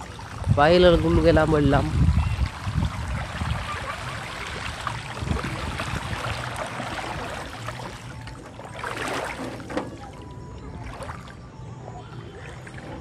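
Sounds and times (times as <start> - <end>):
bicycle wheel splashing through water: 0.0 - 10.0.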